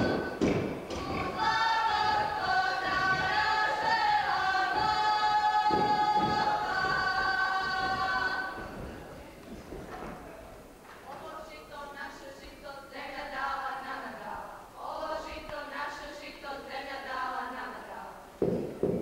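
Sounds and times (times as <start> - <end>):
group singing in harmony: 0.0 - 9.2, 12.6 - 18.2
footsteps thudding: 0.0 - 10.4, 18.4 - 19.0.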